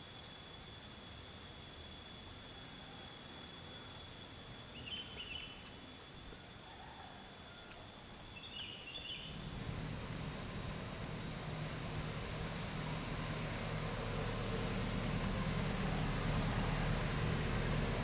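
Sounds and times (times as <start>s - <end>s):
insects trilling: 0.0s - 18.0s
low rumble: 9.3s - 18.0s.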